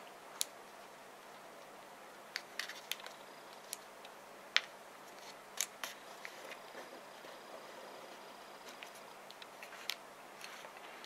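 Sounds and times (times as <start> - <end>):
paper crinkling and clicking: 2.4 - 7.4.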